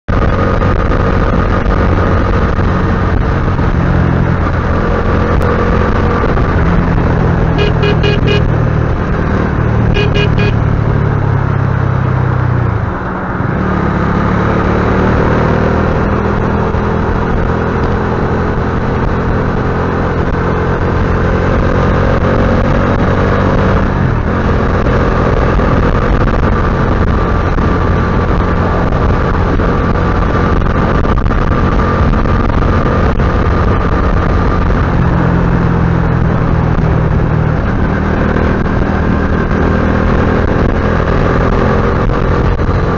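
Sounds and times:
wind and road rush: 0.0 - 42.9
motorcycle engine running: 0.1 - 42.9
horn toots: 7.5 - 8.6, 9.8 - 10.7.

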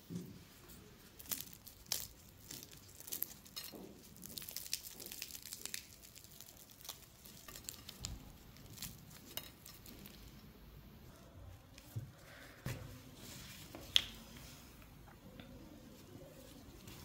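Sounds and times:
puff pastry tearing and crackling: 0.6 - 10.6.

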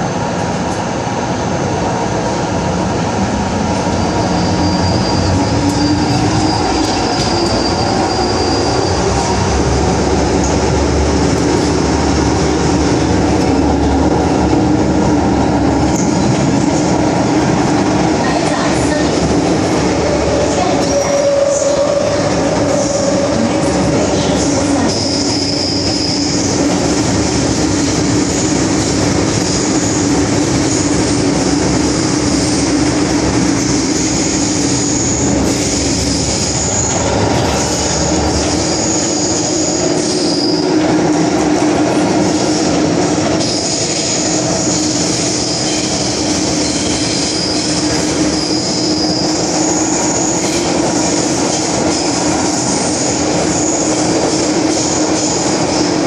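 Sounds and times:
train rumble and hum: 0.0 - 56.0
wheel squeal: 3.9 - 9.0.

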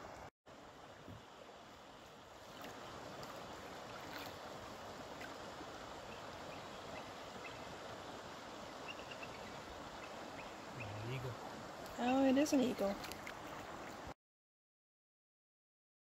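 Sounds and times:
paddle dipping in water: 1.0 - 12.0, 12.6 - 14.1
water lapping on canoe hull: 1.0 - 14.1.

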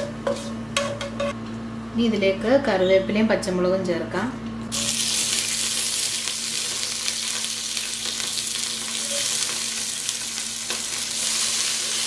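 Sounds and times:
frying hiss with crackles: 4.7 - 12.0.

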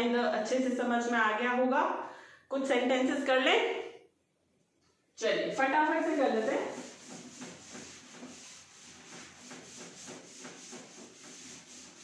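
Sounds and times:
duster rubbing blackboard: 5.6 - 12.0.

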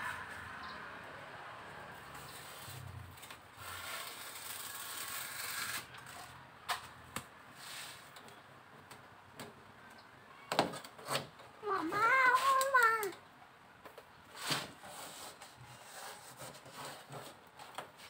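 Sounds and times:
foil foam pad rustling: 2.3 - 5.9.

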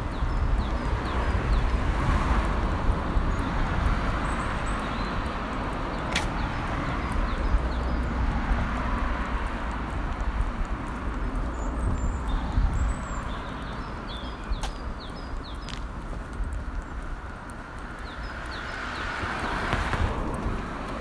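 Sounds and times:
passing cars rumbling: 0.0 - 21.0
small high ticks: 0.0 - 21.0
sharp click: 6.1 - 6.4.

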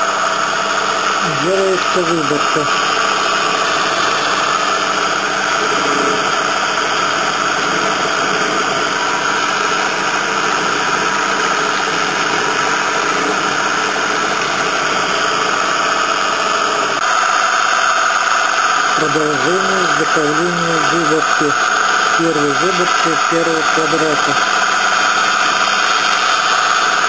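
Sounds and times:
end mill cutting metal: 0.0 - 27.0
milling machine whirring: 0.0 - 27.0.

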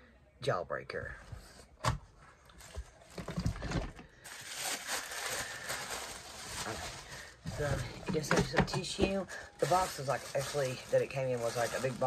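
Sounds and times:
tissue paper rustling: 4.2 - 7.9, 9.3 - 12.0.

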